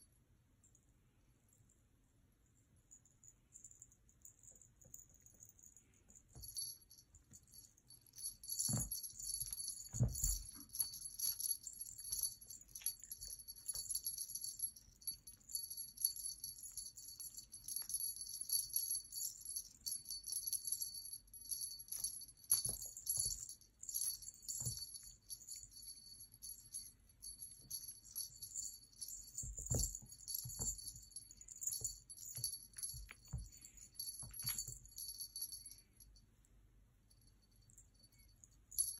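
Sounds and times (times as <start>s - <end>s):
small bell jingling: 2.8s - 36.2s, 37.1s - 38.9s
kitten pouncing thumps on rug: 9.9s - 10.5s, 29.4s - 30.9s.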